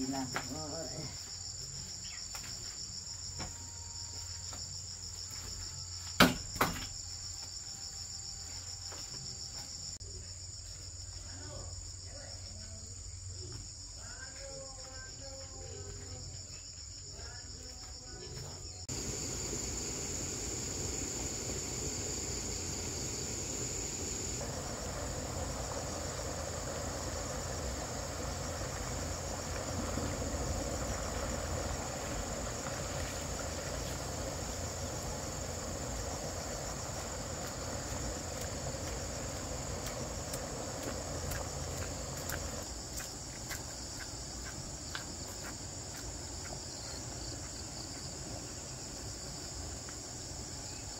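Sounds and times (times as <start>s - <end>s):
insects chirring: 0.0s - 50.9s
background hiss: 18.6s - 50.9s.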